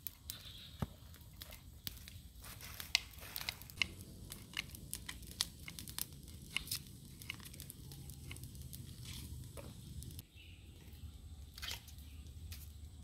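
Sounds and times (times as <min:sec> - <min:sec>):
plant stems snapping and tearing: 0:01.4 - 0:09.4
low steady rumble: 0:03.7 - 0:10.2.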